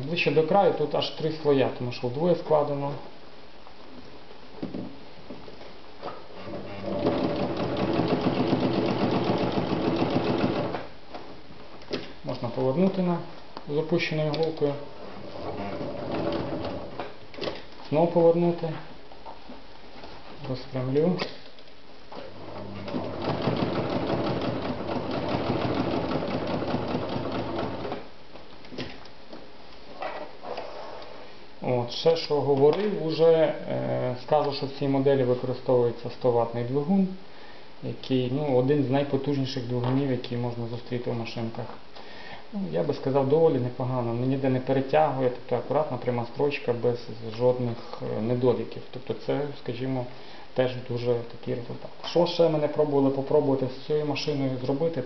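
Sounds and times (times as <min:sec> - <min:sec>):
sewing machine clattering: 0:06.5 - 0:10.9, 0:15.6 - 0:16.9, 0:22.4 - 0:28.0.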